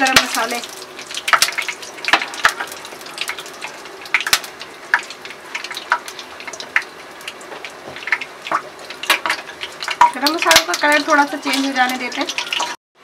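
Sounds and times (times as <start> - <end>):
spices sizzling in hot oil: 0.0 - 12.8
sharp pops and crackles: 0.1 - 3.4, 4.0 - 10.8.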